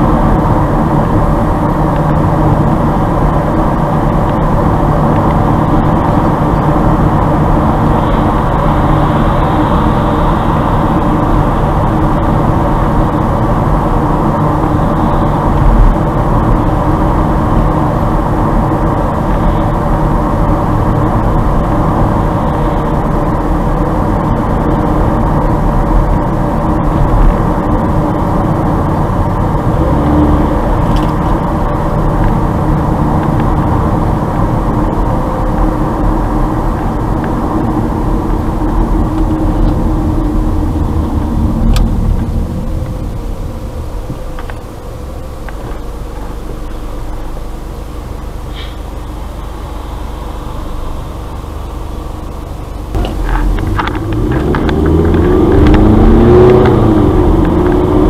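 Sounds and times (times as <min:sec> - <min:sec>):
car engine and tyre noise: 0:00.0 - 0:58.0.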